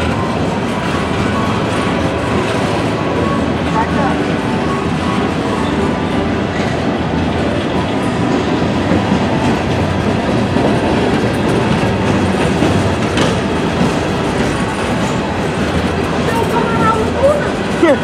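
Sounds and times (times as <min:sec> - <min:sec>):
steel wheels on rails: 0:00.0 - 0:18.0.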